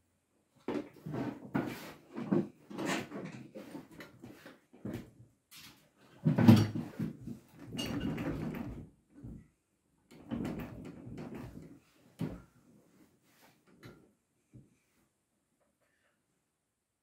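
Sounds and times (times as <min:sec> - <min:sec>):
go-kart frame creaks and clunks: 0:02.2 - 0:05.1, 0:06.2 - 0:09.4, 0:10.1 - 0:12.5.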